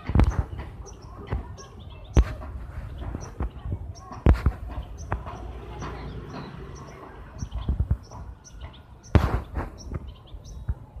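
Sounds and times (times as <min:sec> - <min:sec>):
small birds chirping: 0:00.0 - 0:11.0
loud rustling burst: 0:09.0 - 0:10.2.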